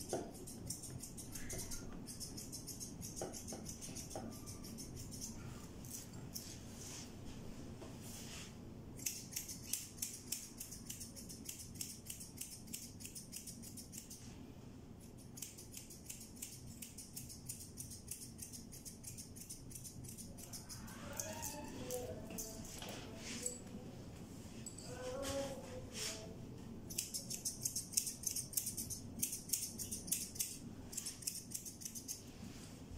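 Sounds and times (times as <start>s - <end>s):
scissors snipping fur: 0.0s - 6.4s, 9.0s - 14.3s, 15.0s - 22.9s, 26.9s - 32.2s.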